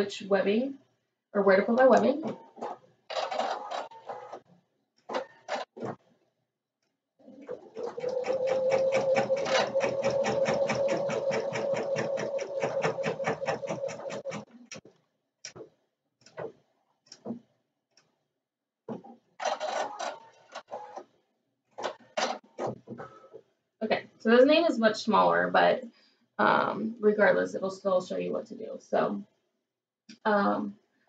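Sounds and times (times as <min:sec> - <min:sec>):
embroidery machine rattling: 0:07.5 - 0:14.5.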